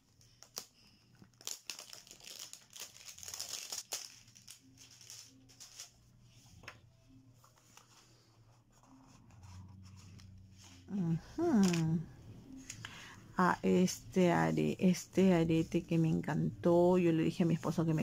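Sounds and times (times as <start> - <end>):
packaging crinkling and rustling: 0.1 - 6.0.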